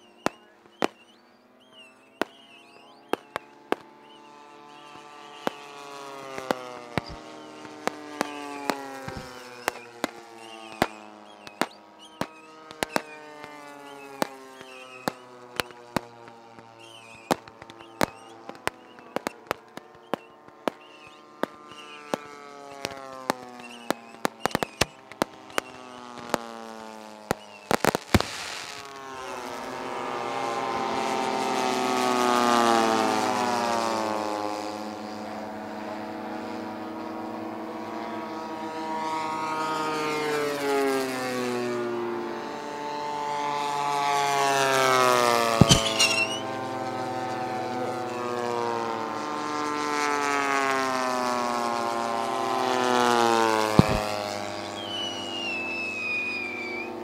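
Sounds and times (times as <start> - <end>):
model airplane engine: 0.0 - 57.0
firework bangs: 0.1 - 33.9, 44.8 - 48.6, 52.2 - 57.0.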